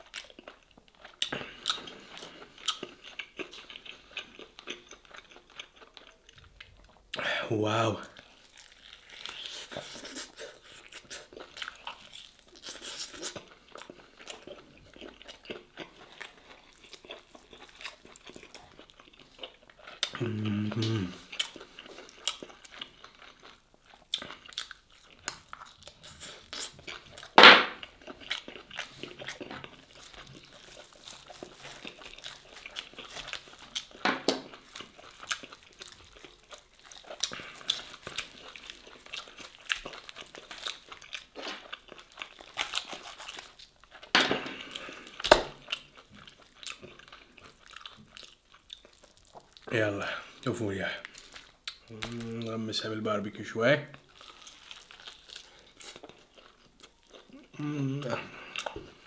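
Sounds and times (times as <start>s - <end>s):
wet chewing and lip-smacking: 0.0s - 7.2s, 8.1s - 52.6s, 54.0s - 59.0s
person humming: 20.2s - 21.3s, 51.9s - 52.5s, 57.4s - 58.5s.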